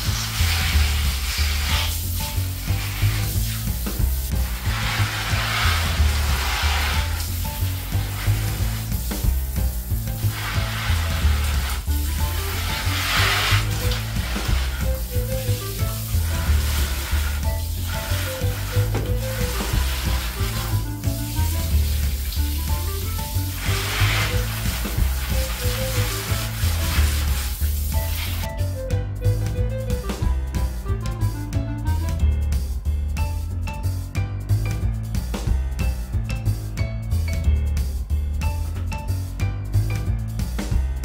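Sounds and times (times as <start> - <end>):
water spraying onto plants: 0.0 - 28.5
background music: 0.0 - 41.0.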